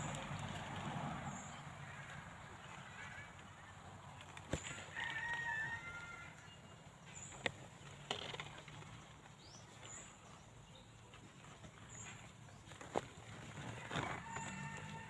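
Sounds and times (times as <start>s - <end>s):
rooster crowing: 4.8s - 6.6s, 13.8s - 15.0s.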